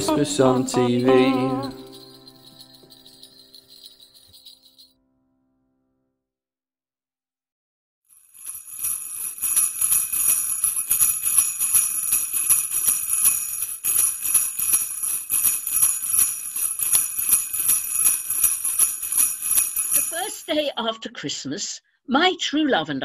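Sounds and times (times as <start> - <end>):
sleigh bells shaken: 0.0 - 5.0, 8.1 - 20.7.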